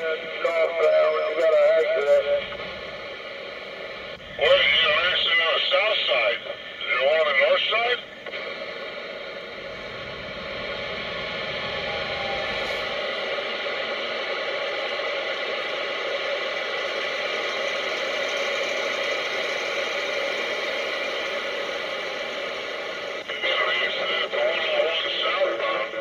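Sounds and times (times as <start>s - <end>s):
radio static hiss: 0.0s - 26.0s
low vehicle rumble: 2.2s - 5.8s, 8.0s - 16.2s.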